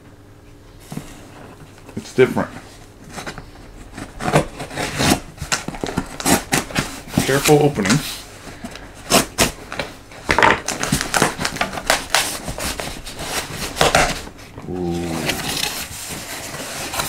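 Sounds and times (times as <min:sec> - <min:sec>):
packing tape ripping: 0:04.0 - 0:07.5, 0:08.7 - 0:14.3.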